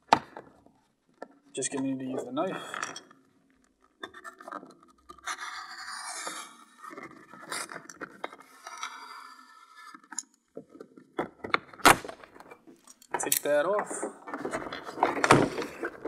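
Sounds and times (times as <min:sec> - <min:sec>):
knife scraping paper: 0:05.2 - 0:07.6.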